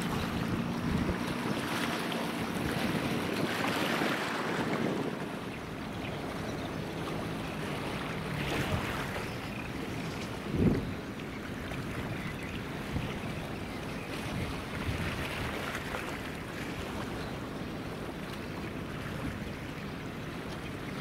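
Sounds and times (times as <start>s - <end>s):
wind on microphone: 0.0s - 17.1s
water rushing and splashing: 0.0s - 21.0s.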